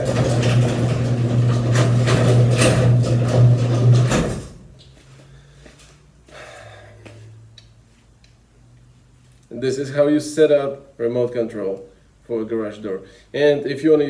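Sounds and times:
garage door clattering: 0.0 - 4.7
garage door opener motor hum: 0.0 - 4.7.

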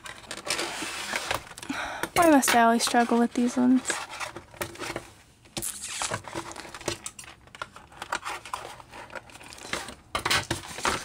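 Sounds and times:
plastic packaging crinkling: 5.6 - 11.0.

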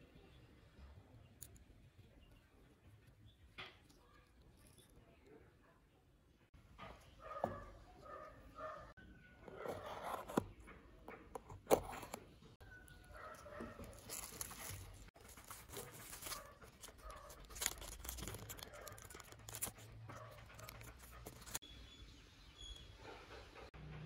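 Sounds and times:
plastic bag crinkling: 12.9 - 21.6.

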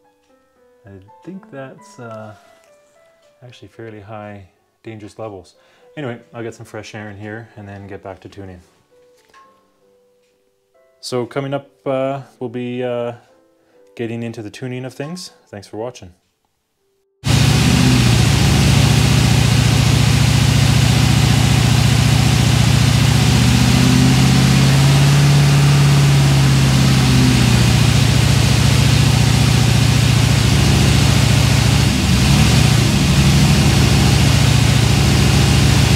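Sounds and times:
airboat engine idling: 17.3 - 35.9.

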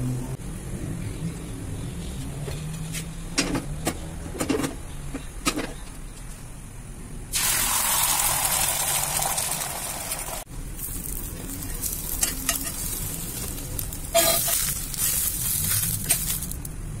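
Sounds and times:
egg sizzling in oil: 7.3 - 16.4
metal spoon scraping pan: 12.1 - 16.4.

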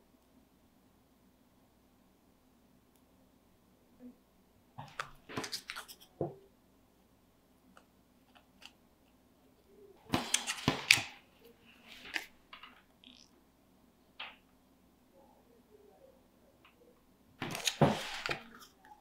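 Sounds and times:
paper rustling and clicking: 10.1 - 11.2, 17.4 - 19.0.

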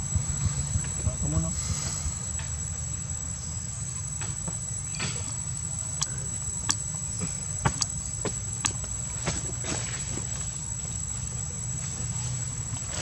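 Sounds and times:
low rumble: 0.0 - 3.2
high steady whine: 0.0 - 13.0
sharp clicks: 6.0 - 7.0.

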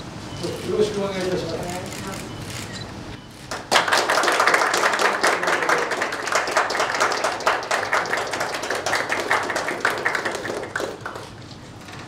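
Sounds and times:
audience applauding: 3.5 - 11.4.

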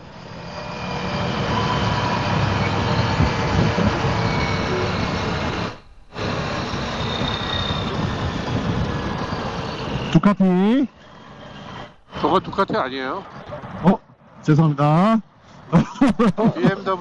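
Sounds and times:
wind rushing on microphone: 1.4 - 10.2.

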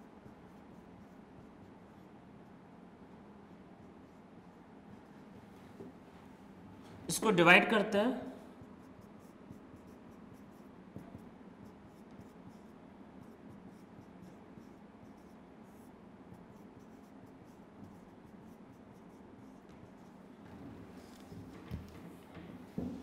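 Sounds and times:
marker pen writing on whiteboard: 0.0 - 6.0, 8.4 - 23.0
low room hiss: 0.0 - 23.0.

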